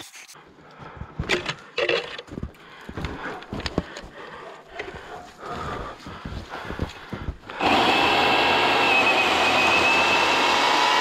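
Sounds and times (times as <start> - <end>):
footsteps crunching through snow: 2.3 - 7.6.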